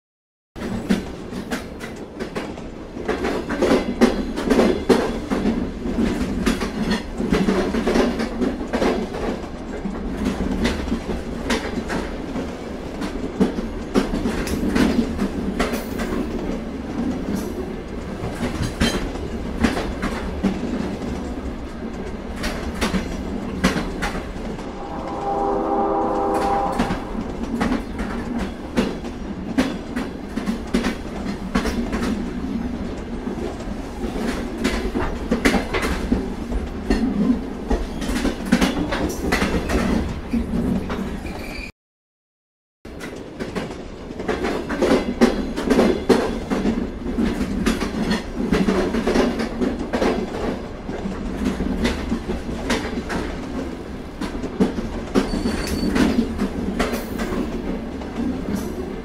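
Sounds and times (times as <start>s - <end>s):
wheels clacking on rail joints: 0.6s - 24.4s
freight train rumbling: 0.6s - 41.6s, 42.9s - 59.0s
brief pitched tone: 24.4s - 28.6s.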